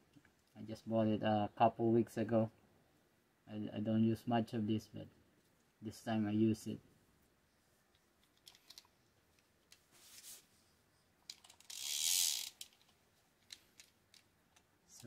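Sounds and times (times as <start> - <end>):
fishing reel handling clicks: 11.3 - 12.8.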